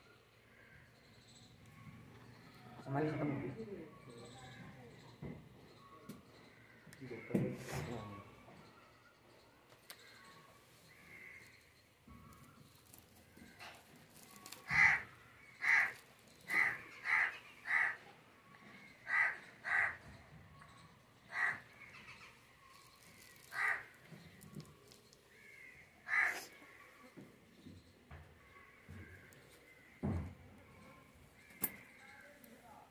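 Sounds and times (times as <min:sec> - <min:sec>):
crow cawing: 0:10.9 - 0:11.6, 0:14.4 - 0:18.0, 0:19.0 - 0:20.1, 0:21.3 - 0:22.3, 0:23.2 - 0:24.0, 0:25.3 - 0:27.1.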